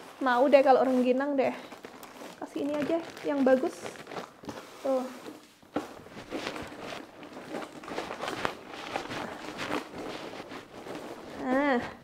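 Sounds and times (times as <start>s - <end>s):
plastic packets crinkling: 0.4s - 5.0s, 6.1s - 11.6s.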